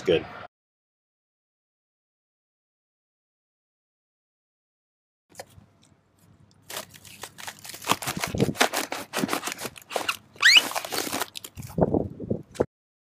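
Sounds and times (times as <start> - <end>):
plastic crackling and scraping: 5.3 - 12.6
short rising squeak: 10.4 - 10.8.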